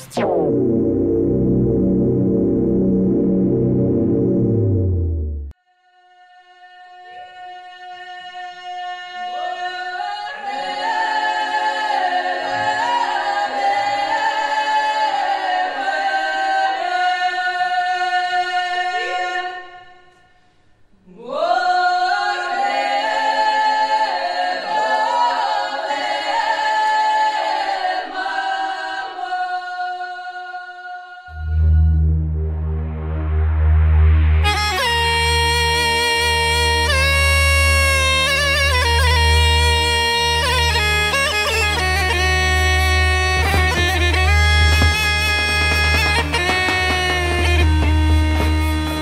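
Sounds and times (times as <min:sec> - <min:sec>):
choir singing a cappella: 0:05.6 - 0:20.4, 0:21.0 - 0:32.1.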